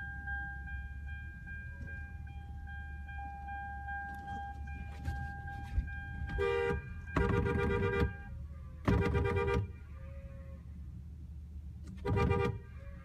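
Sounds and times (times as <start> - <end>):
car horn honking: 6.1 - 9.8, 11.9 - 12.8.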